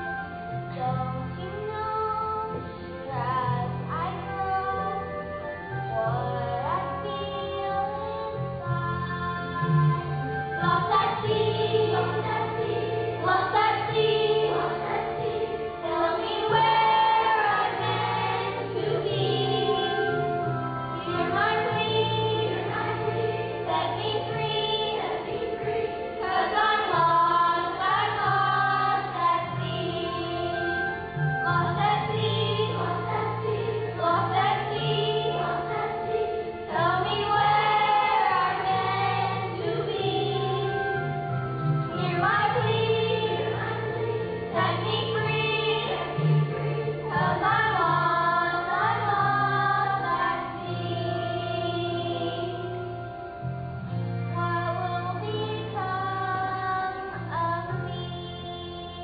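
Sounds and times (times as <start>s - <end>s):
instrumental accompaniment: 0.0s - 59.0s
children singing together: 6.2s - 41.2s, 41.9s - 52.9s.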